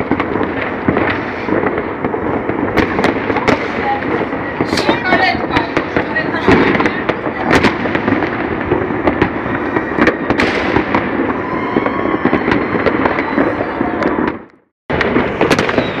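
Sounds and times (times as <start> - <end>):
distant fireworks crackling and banging: 0.0 - 16.0.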